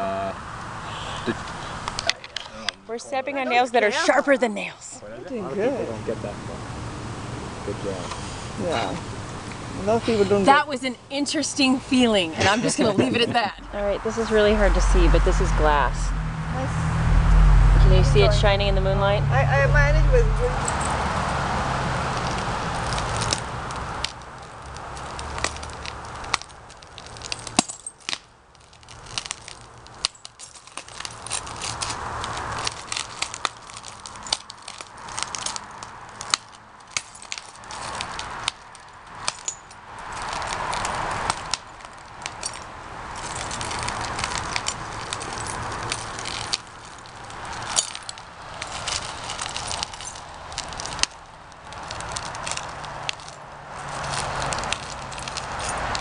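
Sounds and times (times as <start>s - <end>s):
broken glass crunching underfoot: 22.0s - 56.0s.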